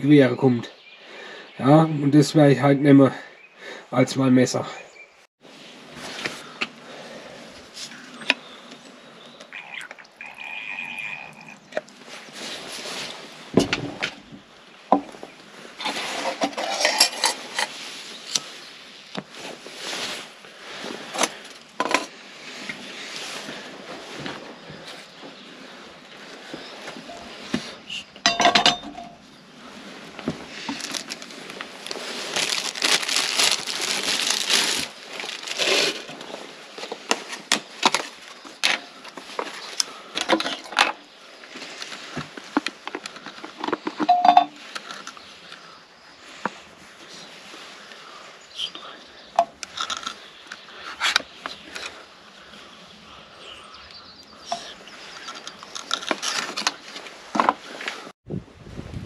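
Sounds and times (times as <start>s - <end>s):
plastic crinkling and tearing: 30.6s - 38.2s.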